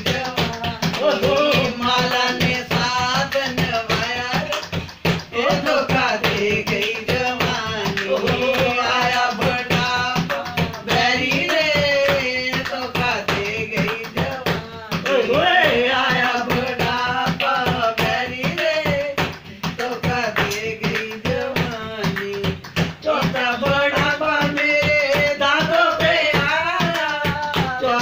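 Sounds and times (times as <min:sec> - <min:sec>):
high voice singing: 0:00.0 - 0:04.6
quick percussion beat: 0:00.0 - 0:28.0.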